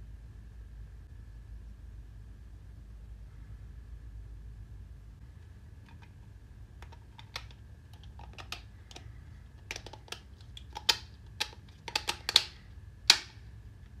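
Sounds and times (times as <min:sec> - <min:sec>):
plastic parts clicking and clacking: 0:05.8 - 0:13.4.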